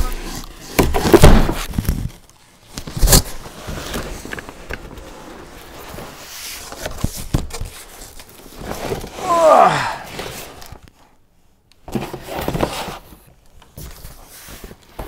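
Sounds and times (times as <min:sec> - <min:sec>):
packaging scraping and rustling: 0:00.0 - 0:09.4.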